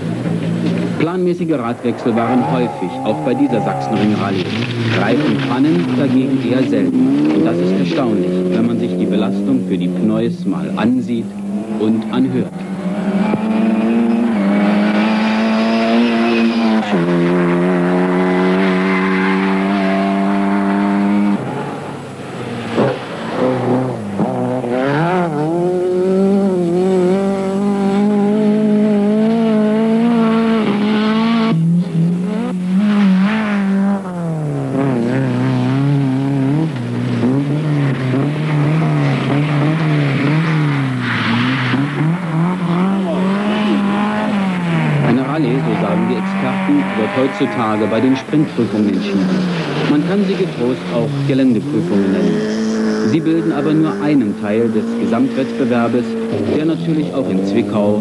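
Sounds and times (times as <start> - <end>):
tyres on loose dirt: 0.0 - 9.3
rally car engines revving: 0.0 - 58.0.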